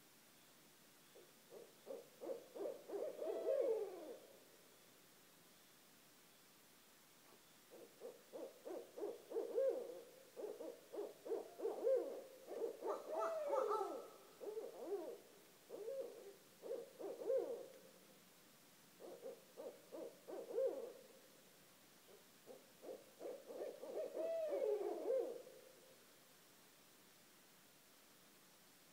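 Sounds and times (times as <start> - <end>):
owls hooting: 1.5 - 4.3, 7.7 - 17.8, 19.0 - 21.0, 22.1 - 25.6
owl wailing: 7.8 - 17.6.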